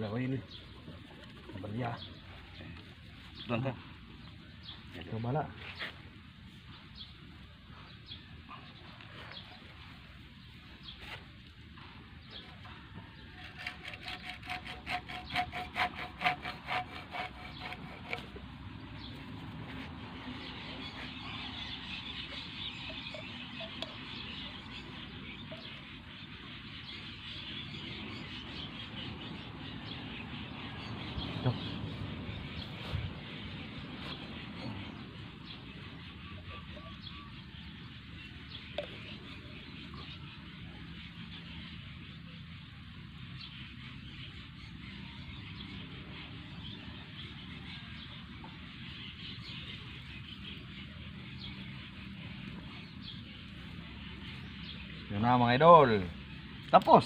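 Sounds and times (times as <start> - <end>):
outdoor background noise: 0.0 - 57.0
hacksaw cutting plastic pipe: 13.4 - 18.4.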